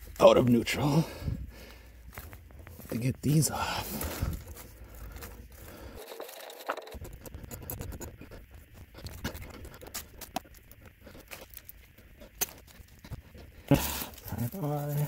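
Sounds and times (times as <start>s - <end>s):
wrench clicking and scraping metal: 6.0s - 11.4s.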